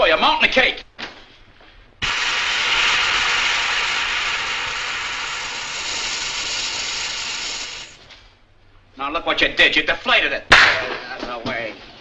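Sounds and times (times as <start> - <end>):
gas hissing out: 2.0 - 8.3.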